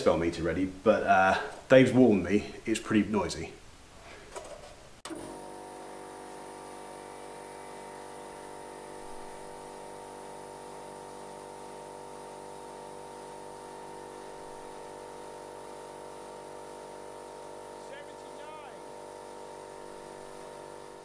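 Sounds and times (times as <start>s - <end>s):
air compressor running: 5.1s - 21.0s.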